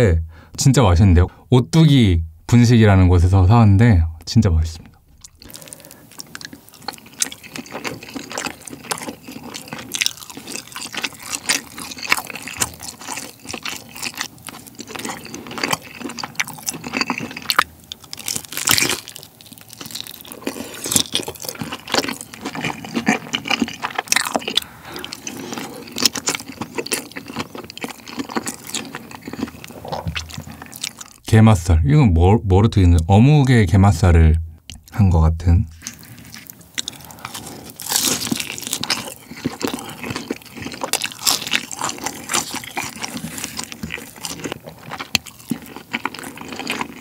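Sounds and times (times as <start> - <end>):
wet sticky chewing: 5.2 - 31.3, 35.8 - 47.0.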